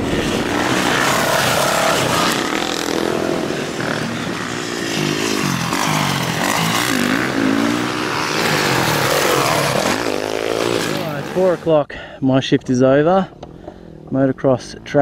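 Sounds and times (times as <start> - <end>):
dirt bikes revving: 0.0 - 11.9.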